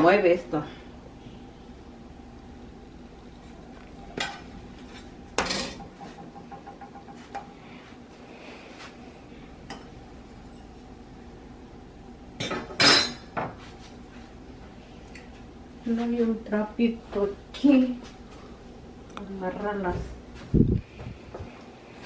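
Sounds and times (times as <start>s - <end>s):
metal utensils clattering on griddle: 4.2s - 5.9s.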